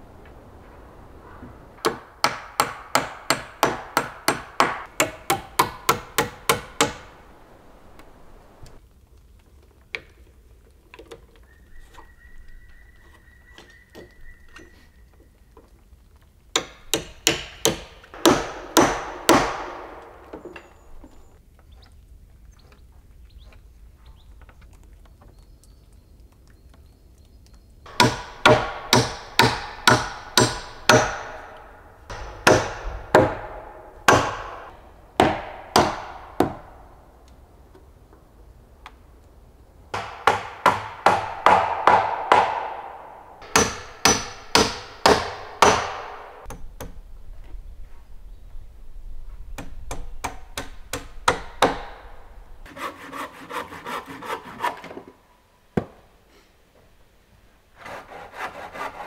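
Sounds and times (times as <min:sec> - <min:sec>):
hammer blows on wood: 0:27.9 - 0:36.8, 0:40.0 - 0:46.6.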